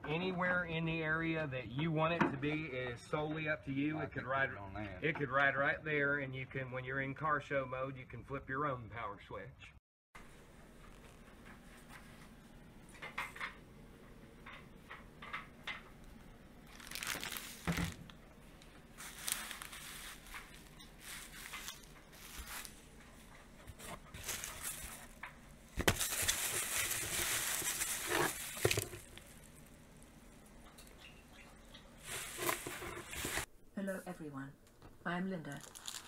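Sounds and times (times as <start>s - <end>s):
bubble wrap rustling: 16.6s - 30.4s, 32.0s - 33.5s, 35.5s - 36.0s.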